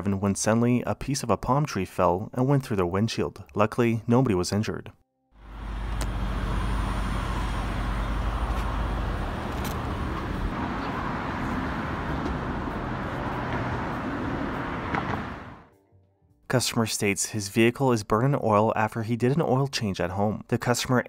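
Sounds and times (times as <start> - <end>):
deep rumble: 5.4 - 15.7
road traffic: 5.4 - 15.7.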